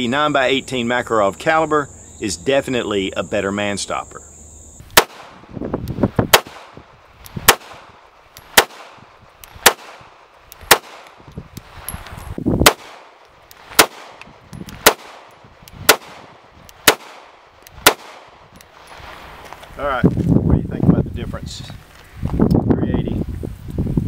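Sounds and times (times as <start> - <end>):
pistol shots: 4.9 - 5.5, 6.3 - 11.2, 12.6 - 18.5.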